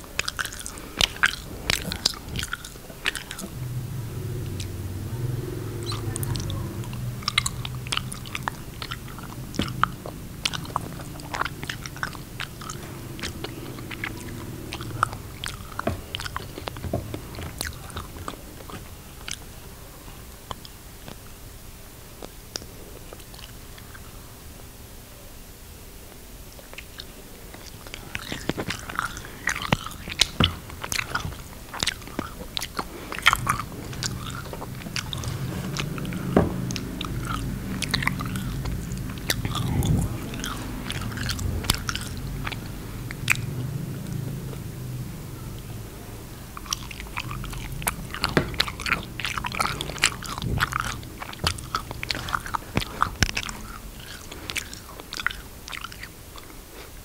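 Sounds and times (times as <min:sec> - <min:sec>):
wet chewing and mouth sounds: 0:00.0 - 0:21.5, 0:22.1 - 0:24.3, 0:26.2 - 0:57.0
smacking clicks: 0:05.8 - 0:19.4, 0:27.6 - 0:44.7, 0:46.6 - 0:56.1.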